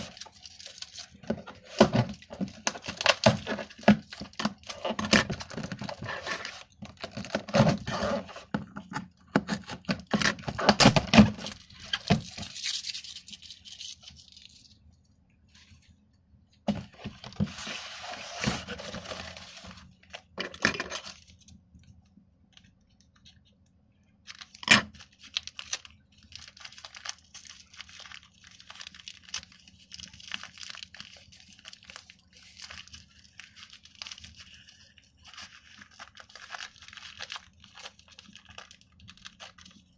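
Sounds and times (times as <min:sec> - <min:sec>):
cardboard tearing: 0:00.0 - 0:08.5, 0:09.4 - 0:14.3, 0:16.7 - 0:19.9
plastic bag crinkling: 0:00.0 - 0:08.5, 0:09.5 - 0:14.8, 0:24.2 - 0:39.9.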